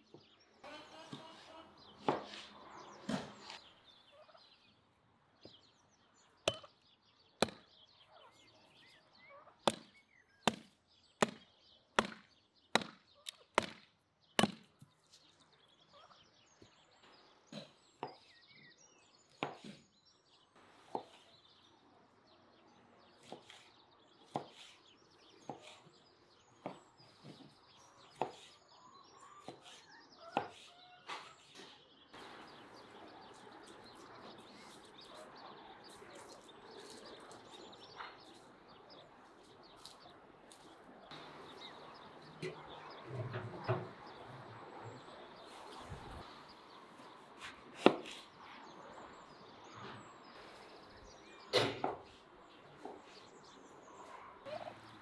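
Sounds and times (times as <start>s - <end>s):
turkeys calling: 0.6s - 2.4s, 6.5s - 6.7s, 8.1s - 9.6s, 54.0s - 55.0s
axe chopping wood: 6.5s - 6.7s, 7.4s - 7.7s, 9.6s - 14.8s, 47.8s - 48.2s.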